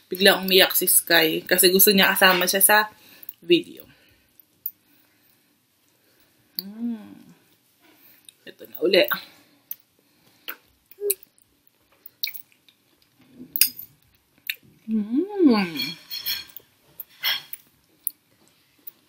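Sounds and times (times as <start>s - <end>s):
person humming: 6.6s - 7.4s, 14.9s - 15.7s
person chewing wetly: 9.7s - 13.3s, 14.4s - 14.7s.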